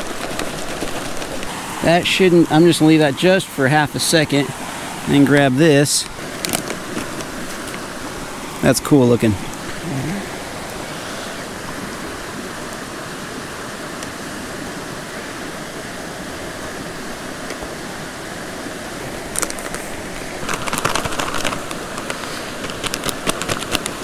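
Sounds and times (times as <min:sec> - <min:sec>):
mountain stream rushing: 0:00.0 - 0:24.0
foil pouch crinkling: 0:19.3 - 0:24.0.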